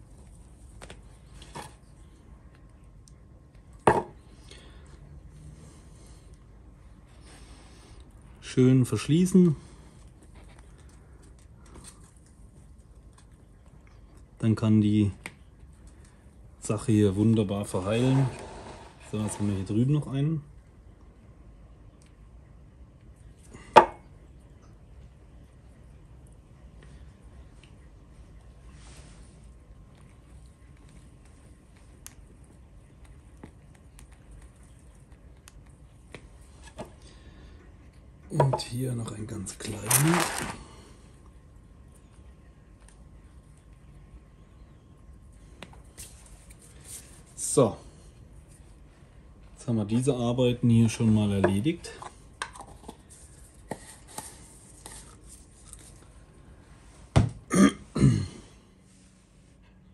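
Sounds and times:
low room hum: 0:00.0 - 0:59.9
loud short noises: 0:39.8 - 0:40.6.

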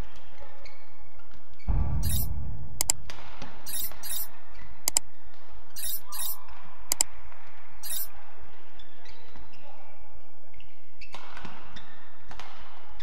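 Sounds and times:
low thud: 0:01.7 - 0:04.3.

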